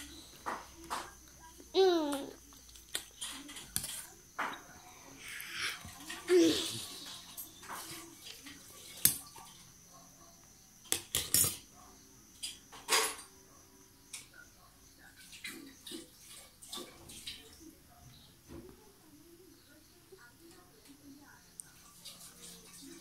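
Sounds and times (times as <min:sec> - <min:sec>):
metal spoon clinking on steel plate: 0:10.9 - 0:11.6.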